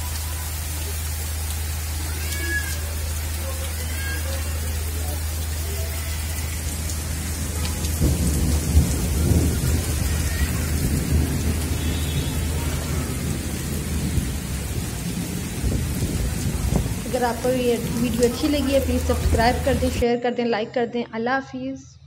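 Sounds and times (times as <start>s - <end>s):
heavy rain falling: 0.0s - 20.0s.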